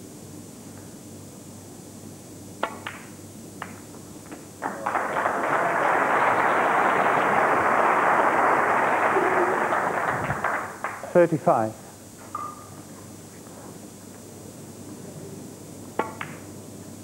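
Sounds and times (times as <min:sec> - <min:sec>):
crowd applause: 0:04.6 - 0:11.3.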